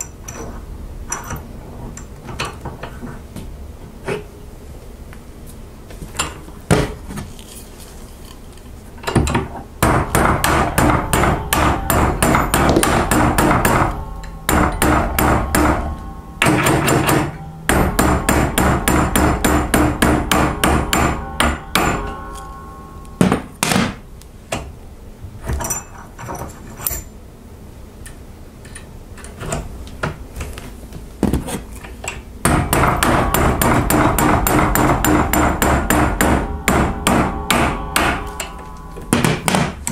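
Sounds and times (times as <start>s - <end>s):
hammer striking steel: 9.2s - 24.8s, 32.4s - 39.9s.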